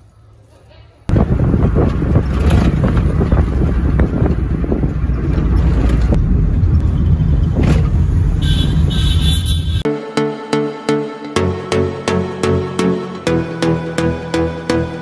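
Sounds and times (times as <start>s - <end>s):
car engine and road rumble: 1.1s - 9.9s.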